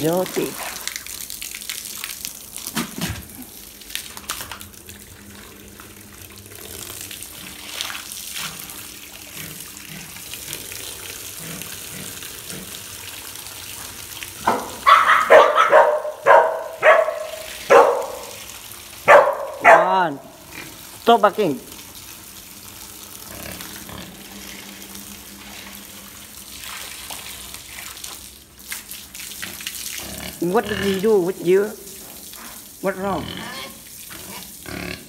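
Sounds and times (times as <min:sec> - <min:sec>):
water pouring and splashing on metal: 0:00.0 - 0:35.0
dog barking: 0:14.5 - 0:18.4, 0:19.0 - 0:20.1.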